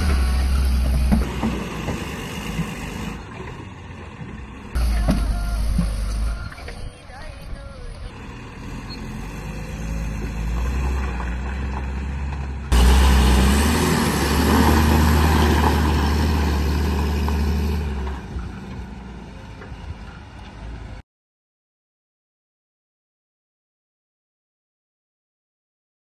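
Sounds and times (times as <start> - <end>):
diesel truck driving past: 0.0 - 21.0.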